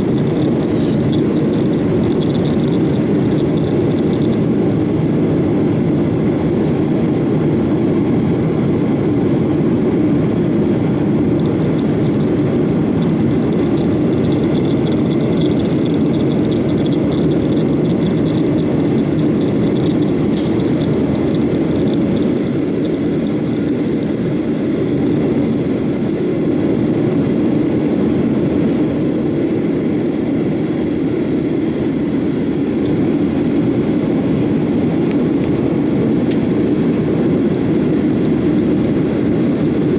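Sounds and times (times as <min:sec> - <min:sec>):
airplane cabin engine roar: 0:00.0 - 0:39.9
faint high whine: 0:09.4 - 0:25.7.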